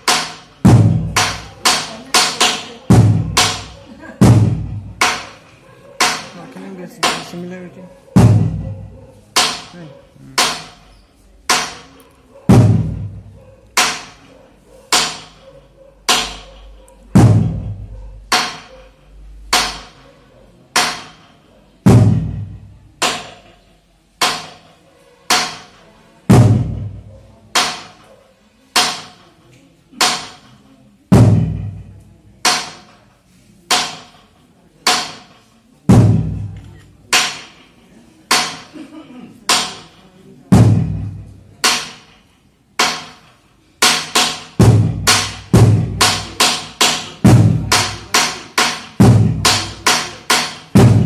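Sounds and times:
deep drum boom: 4.2s - 4.9s, 8.2s - 8.6s, 17.2s - 17.7s, 50.8s - 51.0s.

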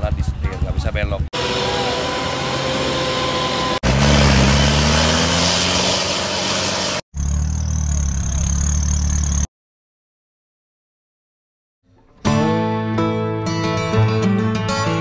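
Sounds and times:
thin high engine whine: 1.4s - 9.4s
off-road engines revving: 1.4s - 9.5s.

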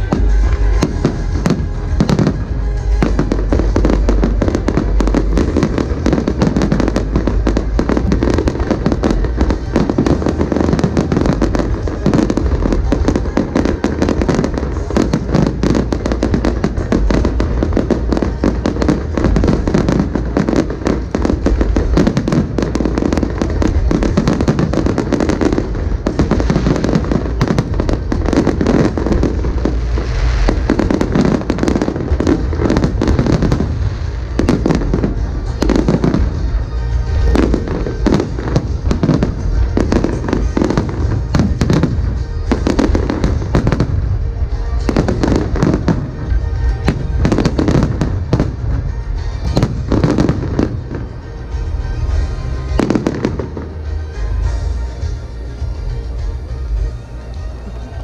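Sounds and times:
fireworks bursting: 0.0s - 58.0s
heavy low rumble: 0.0s - 58.0s
music playing: 0.0s - 58.0s.

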